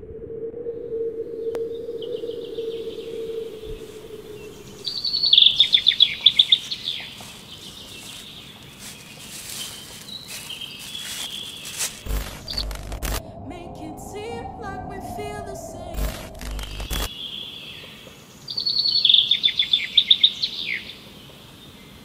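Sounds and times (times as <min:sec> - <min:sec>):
low steady hum: 0:00.0 - 0:06.1, 0:11.8 - 0:17.1
outdoor ambience: 0:00.0 - 0:22.0
songbird trilling: 0:02.0 - 0:12.6.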